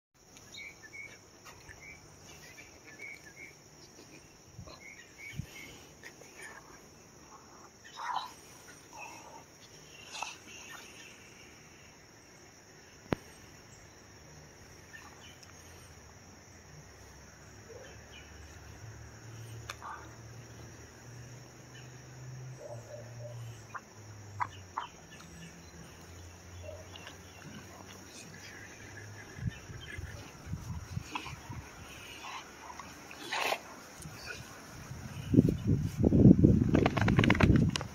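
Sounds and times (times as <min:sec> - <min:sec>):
insect drone: 0:00.2 - 0:37.9
dog play-growling: 0:27.0 - 0:34.4.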